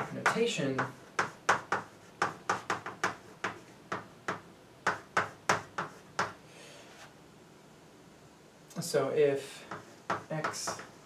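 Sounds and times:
chalk scratching: 0:00.0 - 0:03.8, 0:09.7 - 0:11.0
chalk tapping on blackboard: 0:00.0 - 0:06.4, 0:09.6 - 0:11.0.

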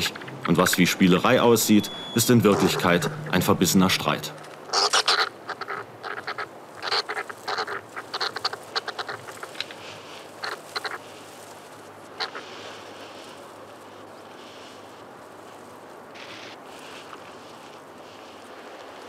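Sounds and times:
ground squirrels calling: 0:00.0 - 0:11.2, 0:12.1 - 0:12.6.

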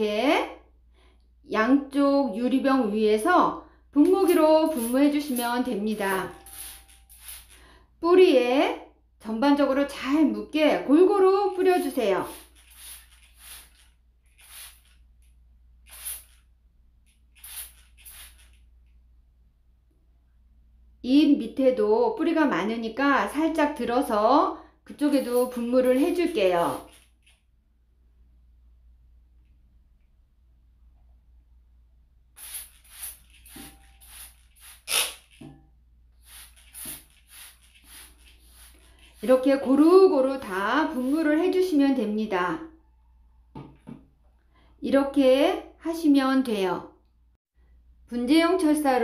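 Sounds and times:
spray bottle hissing: 0:04.1 - 0:07.6, 0:11.5 - 0:15.0, 0:15.9 - 0:16.4, 0:17.3 - 0:18.6, 0:25.1 - 0:27.1, 0:32.4 - 0:35.5, 0:36.2 - 0:39.6, 0:40.8 - 0:41.4.

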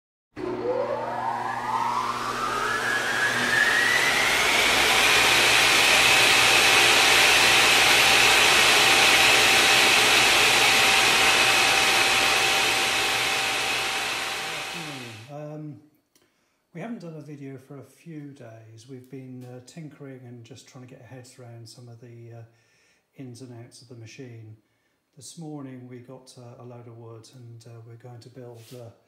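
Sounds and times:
electric motor whine: 0:00.4 - 0:15.3
loud rushing hiss: 0:03.2 - 0:15.3.

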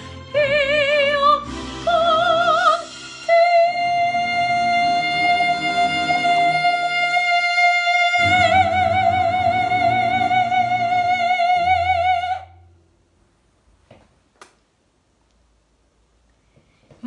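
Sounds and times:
orchestral backing track: 0:00.0 - 0:12.4
woman singing operatically: 0:00.0 - 0:12.6.

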